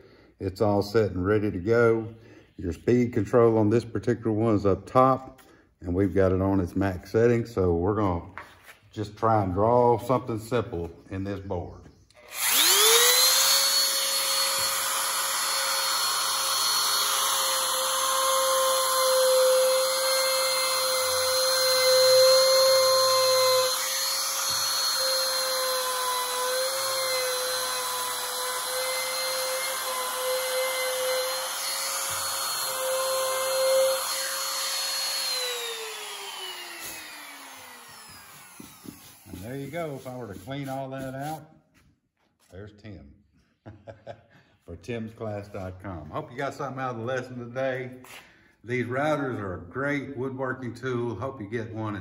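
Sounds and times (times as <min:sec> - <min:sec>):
router whining cutting wood: 0:12.1 - 0:40.2
router motor spinning down: 0:12.2 - 0:39.4.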